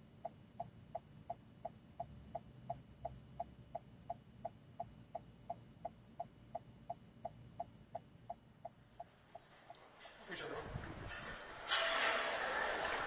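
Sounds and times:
turn signal ticking: 0.0 - 9.8.

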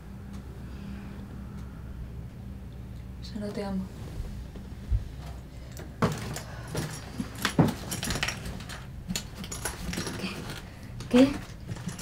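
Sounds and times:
zipper pulls clicking and rattling: 7.0 - 12.0.

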